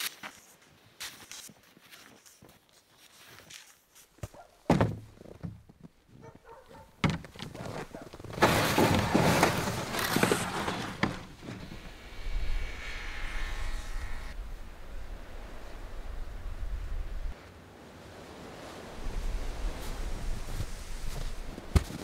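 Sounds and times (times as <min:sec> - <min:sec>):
footsteps crunching in snow: 0:00.0 - 0:11.8, 0:19.1 - 0:22.0
plastic sled scraping snow: 0:07.0 - 0:12.0, 0:18.9 - 0:22.0
wind rumble on microphone: 0:11.3 - 0:17.4, 0:18.4 - 0:21.8.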